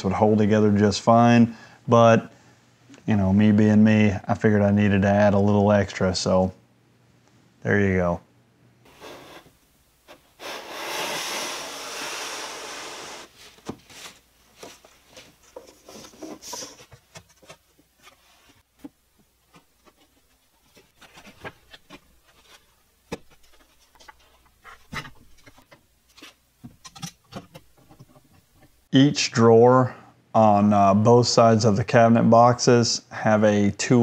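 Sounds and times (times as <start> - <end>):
wooden panel scraping: 8.9 - 18.6.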